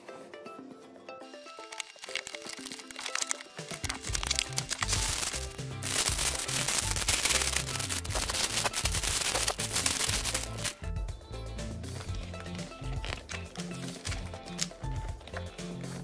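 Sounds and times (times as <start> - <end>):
background music: 0.0 - 16.0
plastic bags crinkling: 1.7 - 10.8.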